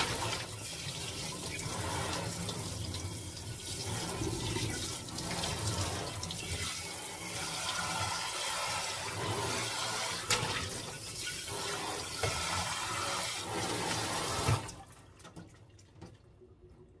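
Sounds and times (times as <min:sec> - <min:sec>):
faint water drips: 0:14.7 - 0:17.0.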